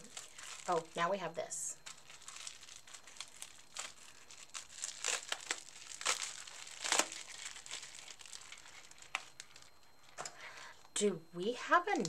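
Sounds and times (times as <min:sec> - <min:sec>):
bubble wrap crinkling: 0:00.0 - 0:10.9.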